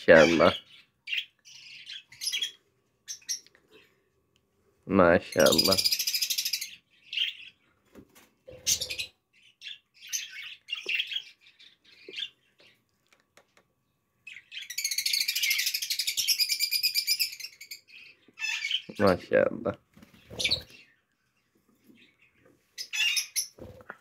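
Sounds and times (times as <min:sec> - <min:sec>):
budgerigars chirping and chattering: 0:00.0 - 0:03.5, 0:05.3 - 0:07.6, 0:08.5 - 0:12.8, 0:14.2 - 0:21.0, 0:21.8 - 0:23.9.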